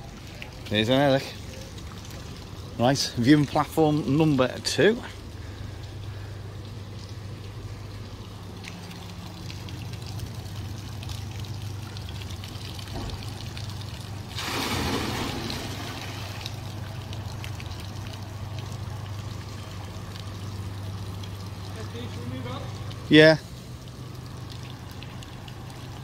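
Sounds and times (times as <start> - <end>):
steady low hum: 0.0 - 26.0
water trickling and splashing: 0.0 - 26.0
rush of water: 8.0 - 26.0.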